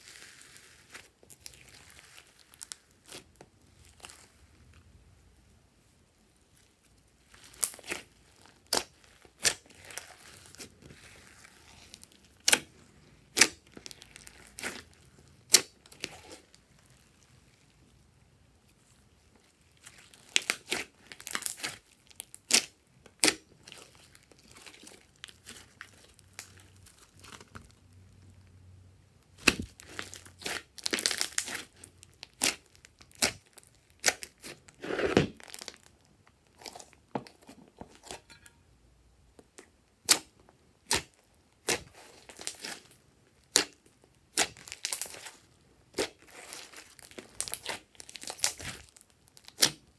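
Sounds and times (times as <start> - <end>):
slime squished by hand: 0.0 - 4.7, 18.8 - 27.8, 29.3 - 37.0, 40.0 - 49.9.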